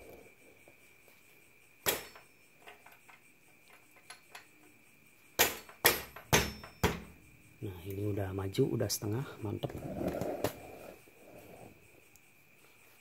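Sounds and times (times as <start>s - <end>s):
knocks on motorcycle wheel axle: 5.4s - 7.1s
faint ticks: 12.0s - 12.3s.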